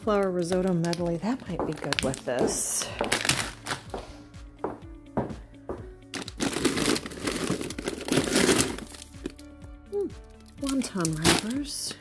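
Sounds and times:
faint background music: 0.0s - 12.0s
plastic bags crinkling: 0.8s - 3.9s, 6.1s - 9.4s, 10.6s - 11.9s.

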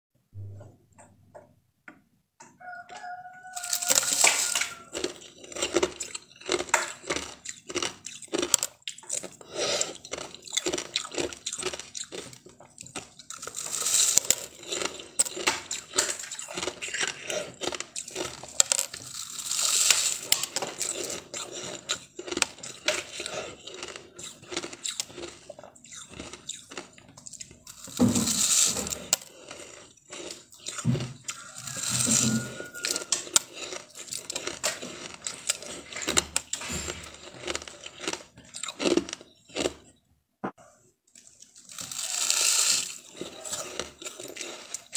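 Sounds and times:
shaved ice crunching: 3.6s - 12.2s, 13.3s - 25.4s, 27.7s - 38.2s, 41.6s - 44.9s.

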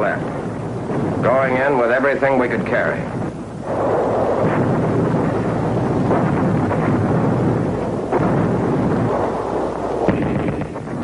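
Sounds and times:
explosions: 0.0s - 11.0s
gunfire: 3.7s - 11.0s.

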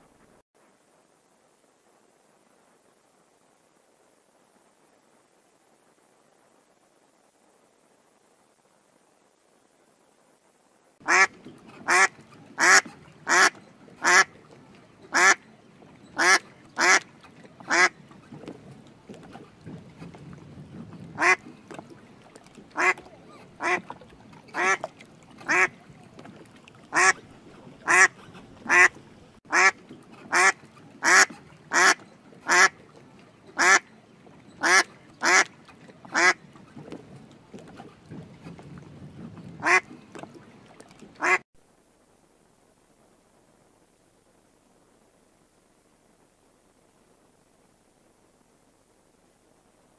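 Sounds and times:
swan calling: 11.0s - 41.4s.

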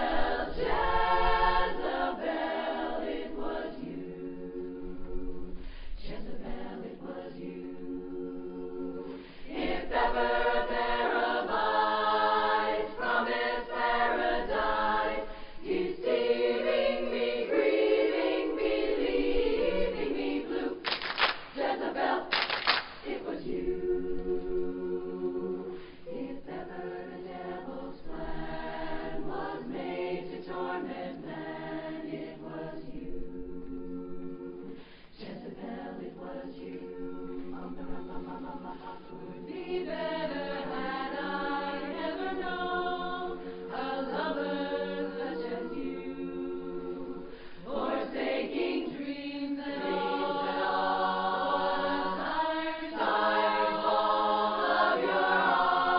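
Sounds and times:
women's chorus singing a cappella: 0.0s - 55.9s.

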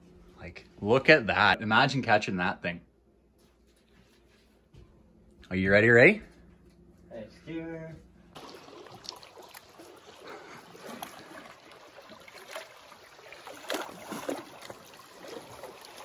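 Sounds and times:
small waves lapping on rocks: 8.4s - 16.0s
water splashes: 8.4s - 16.0s.

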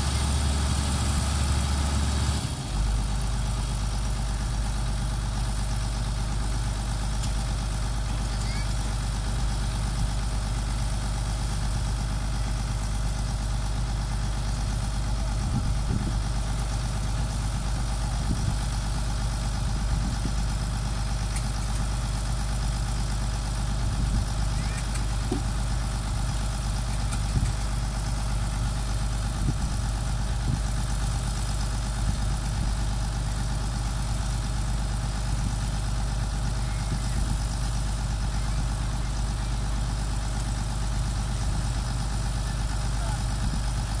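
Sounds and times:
diesel engine idling: 0.0s - 44.0s.

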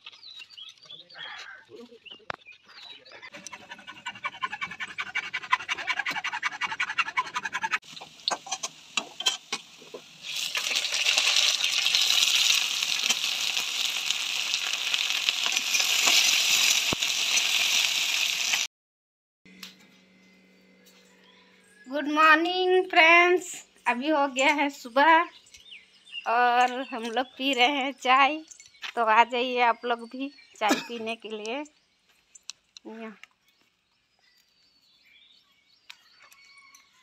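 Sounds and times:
vegetables sizzling in hot oil: 7.9s - 18.7s.

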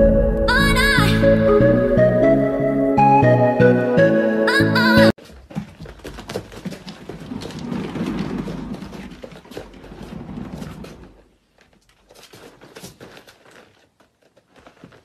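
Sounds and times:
cat paws pattering: 5.2s - 15.0s
exercise wheel rolling rumble: 5.2s - 15.0s.

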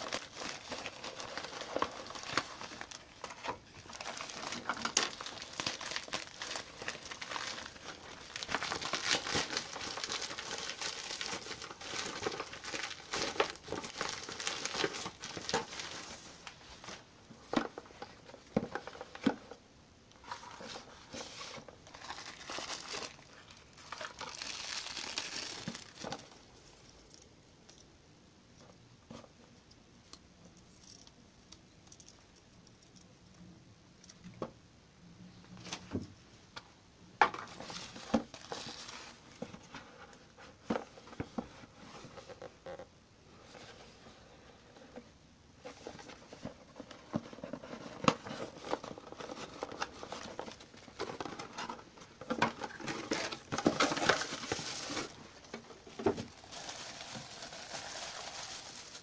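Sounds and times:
plastic packaging crinkling: 0.0s - 19.4s, 20.2s - 26.4s, 37.4s - 39.5s, 45.8s - 59.0s.

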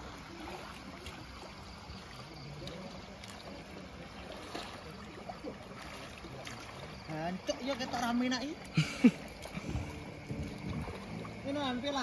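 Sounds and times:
pool water lapping: 0.0s - 12.0s.

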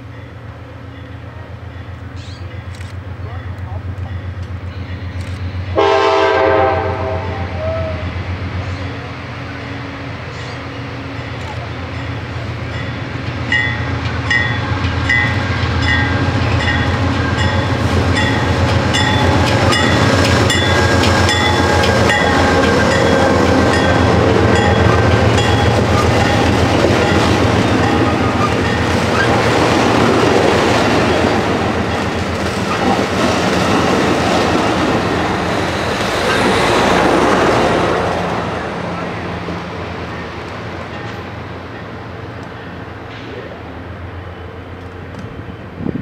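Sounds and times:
diesel locomotive: 0.0s - 46.0s
train rumble: 0.0s - 46.0s
train wheels clicking over rail joints: 11.2s - 37.3s.

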